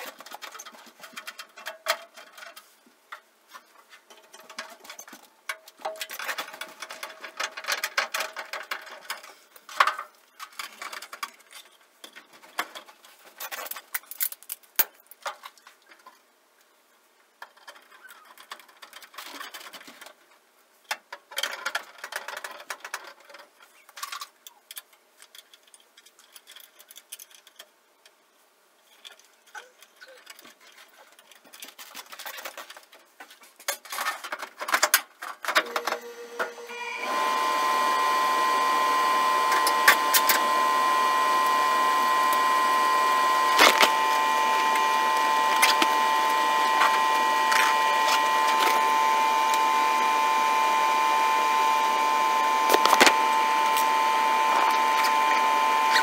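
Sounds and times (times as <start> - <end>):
hands clicking and tapping parts: 20.8 - 28.2
furnace motor whine: 35.6 - 56.0.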